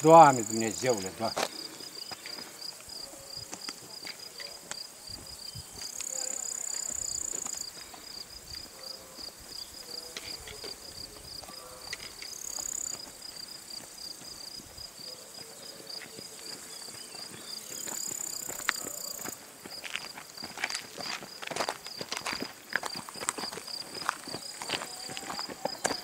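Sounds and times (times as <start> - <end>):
high insect buzz: 0.0 - 16.0
insects chirping: 0.0 - 26.0.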